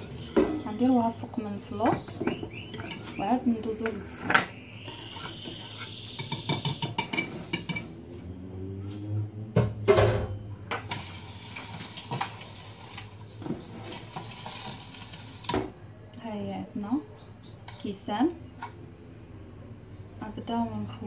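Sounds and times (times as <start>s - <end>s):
kitchenware knocks and clinks: 1.8s - 4.6s, 6.2s - 7.9s, 9.6s - 11.1s.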